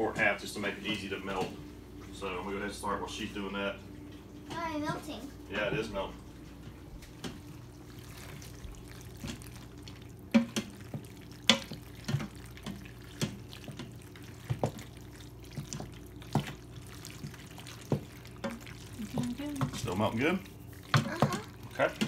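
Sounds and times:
steady low hum: 0.0 - 22.0
wet stirring of macaroni: 7.2 - 22.0.

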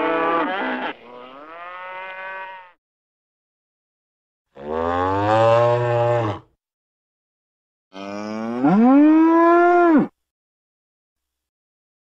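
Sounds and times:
cow mooing: 0.0 - 2.8, 4.6 - 6.5, 7.9 - 10.1.

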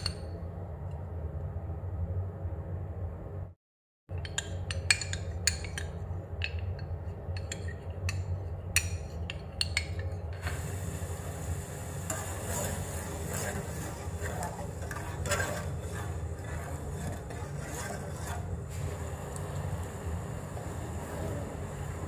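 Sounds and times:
syrup hissing in a saucepan: 10.4 - 22.0.

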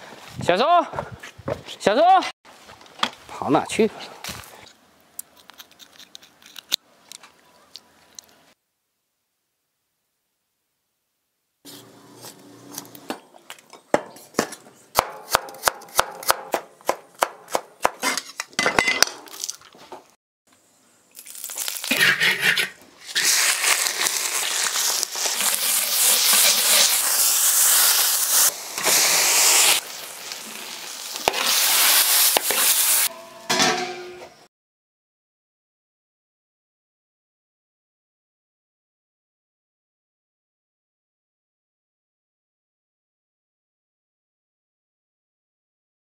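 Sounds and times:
knife chopping on wooden board: 14.0 - 18.1
oil sizzling in a wok: 21.2 - 33.1.

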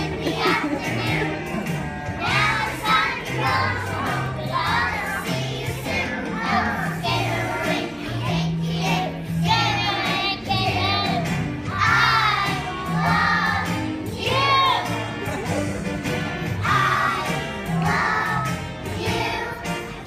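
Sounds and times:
children singing: 0.0 - 15.5, 16.4 - 20.0
instrumental accompaniment with bass: 0.0 - 20.0.

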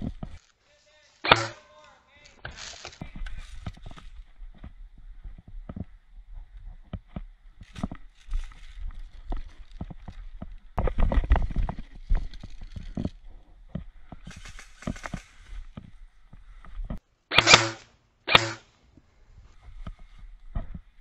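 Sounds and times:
footsteps on leaves: 0.0 - 4.7, 7.6 - 13.0
airsoft gunfire bursts: 17.3 - 18.6.

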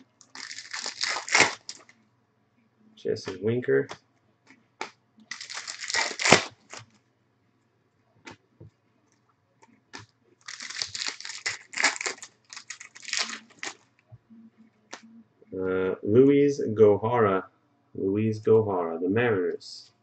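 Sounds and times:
foil wrapper crinkling and tearing: 0.2 - 1.9, 5.3 - 6.8, 10.4 - 13.8.

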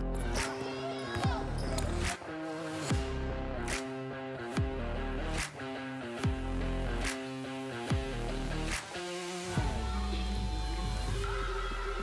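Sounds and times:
guitar-led music with steady beat: 2.0 - 9.8.

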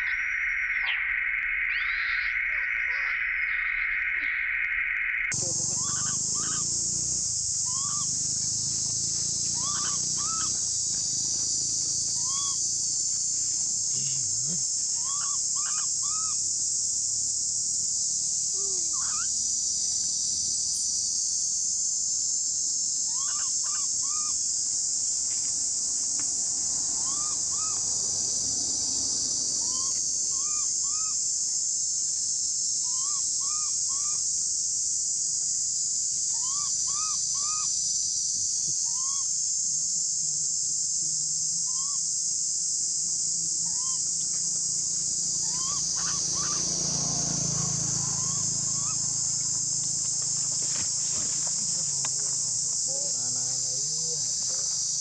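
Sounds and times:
high-pitched insect drone: 4.9 - 55.0
short chirping calls: 5.3 - 16.5, 18.2 - 21.6, 23.1 - 25.6, 26.9 - 31.3, 43.6 - 52.2.

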